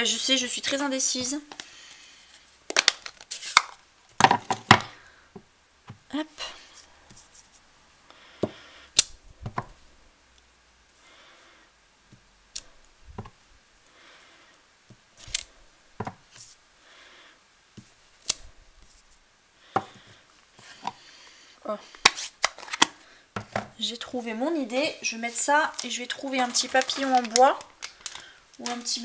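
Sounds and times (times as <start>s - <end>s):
soft rubbing: 6.7s - 7.8s, 18.8s - 19.3s.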